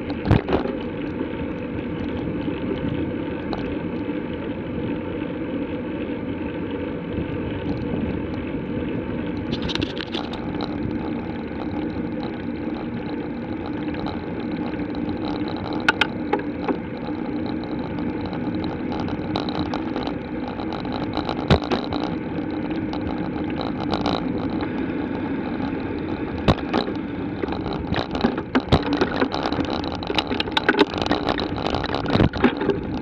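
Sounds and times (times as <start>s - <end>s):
bike knocking and rattling: 0.0s - 1.0s, 9.5s - 33.0s
bicycle tyres humming on road: 0.0s - 33.0s.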